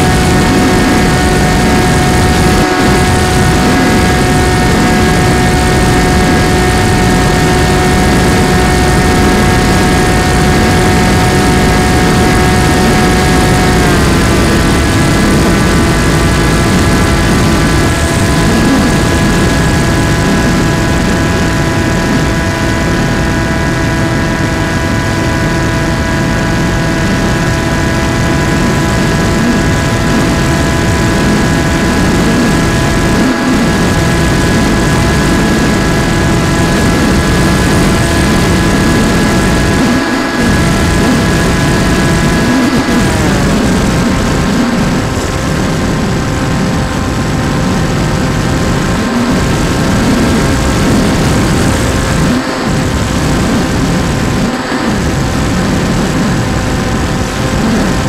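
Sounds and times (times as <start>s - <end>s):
plane motor and propeller whining: 0.0s - 58.0s.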